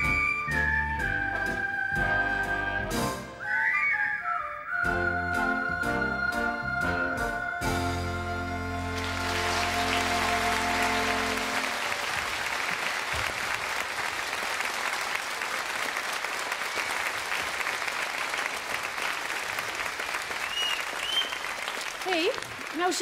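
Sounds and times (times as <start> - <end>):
audience applauding: 8.7 - 23.0.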